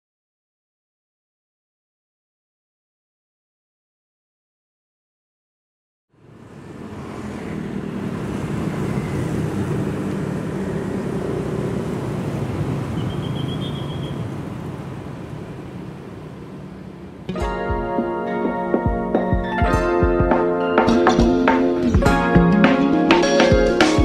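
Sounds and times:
traffic rumble: 6.1 - 17.4.

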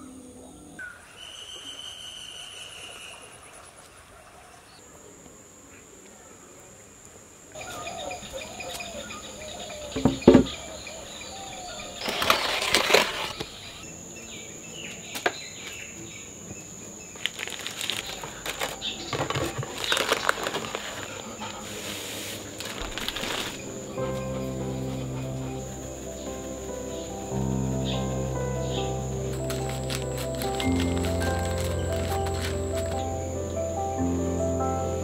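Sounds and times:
high insect drone: 5.0 - 35.0
baking paper rustling: 12.0 - 13.6, 17.2 - 23.7, 29.3 - 33.0.

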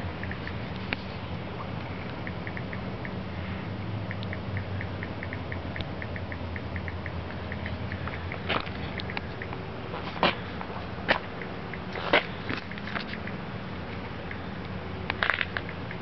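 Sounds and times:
faint high ticks: 0.2 - 0.9, 1.8 - 3.2, 4.0 - 9.6, 11.1 - 16.0
sharp click: 2.1 - 3.2, 4.1 - 9.6.

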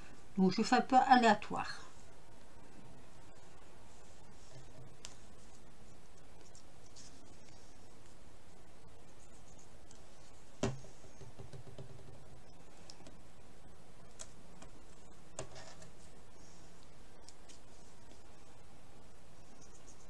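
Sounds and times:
steady background noise: 0.0 - 20.0.

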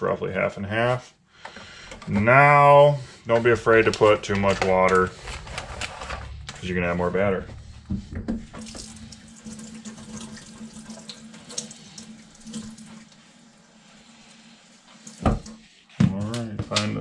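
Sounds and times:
faucet running water into bowl: 8.4 - 15.6.

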